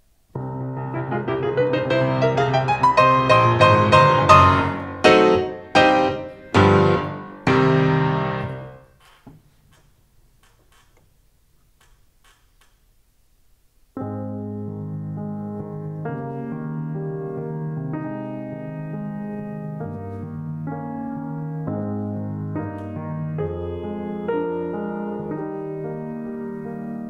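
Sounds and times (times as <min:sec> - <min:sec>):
grand piano playing: 0:00.4 - 0:09.0, 0:14.0 - 0:27.0.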